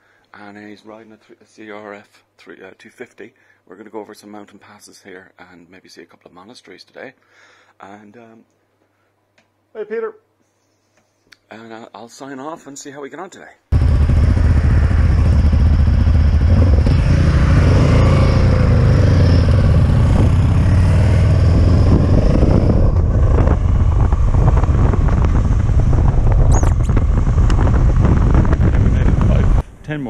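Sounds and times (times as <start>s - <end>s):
motorcycle engine riding: 13.7s - 29.6s.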